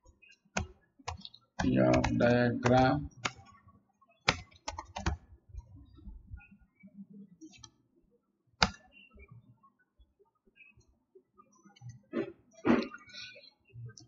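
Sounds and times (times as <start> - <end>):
keyboard typing: 0.5 - 3.6, 4.2 - 5.7, 8.6 - 8.9.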